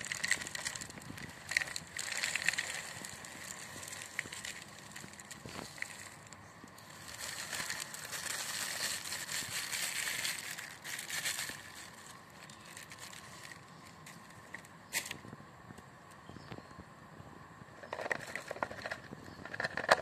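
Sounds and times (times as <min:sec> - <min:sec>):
pellets pouring through funnel: 0:00.0 - 0:13.6
plastic bag crinkling: 0:00.0 - 0:14.4.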